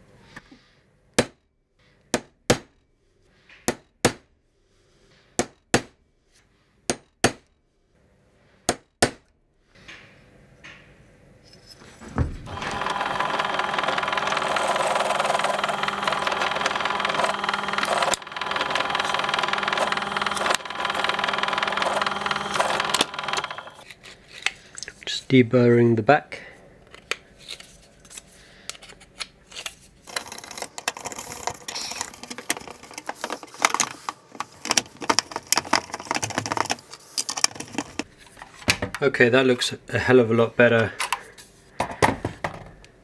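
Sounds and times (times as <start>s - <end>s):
pillar drill drilling metal: 12.5s - 23.8s.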